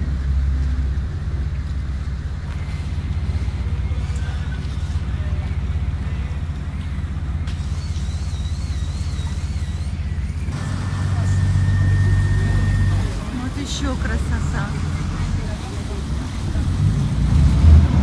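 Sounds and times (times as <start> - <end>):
boat diesel engine rumble: 0.0 - 18.0
thin wavering whistle-like tone: 11.0 - 13.4.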